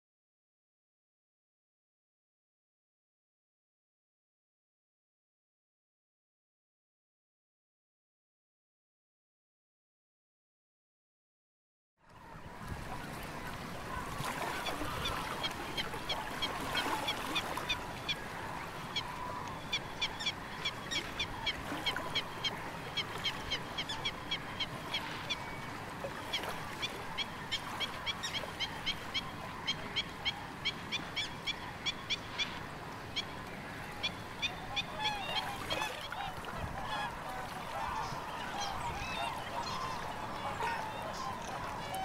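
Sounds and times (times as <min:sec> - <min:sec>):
many distant birds: 0:12.1 - 0:42.0.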